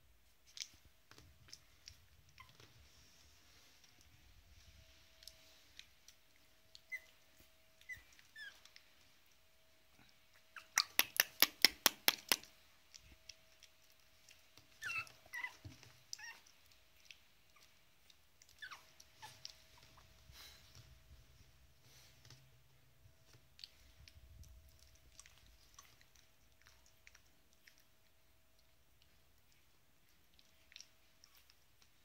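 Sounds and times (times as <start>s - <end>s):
puppy squeaking: 2.3s - 2.8s, 6.7s - 8.8s, 10.3s - 12.4s, 14.7s - 16.5s, 18.4s - 20.1s.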